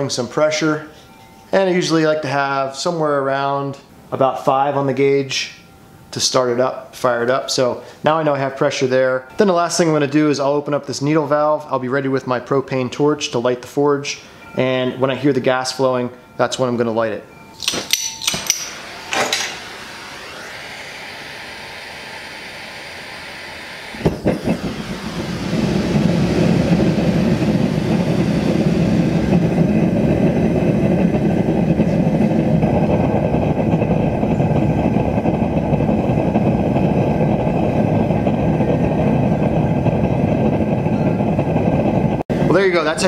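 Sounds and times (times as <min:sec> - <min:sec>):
gas hissing from torch: 0:17.6 - 0:40.2
burner flame roaring: 0:17.6 - 0:43.0
sharp pops of burner lighting: 0:24.0 - 0:24.8.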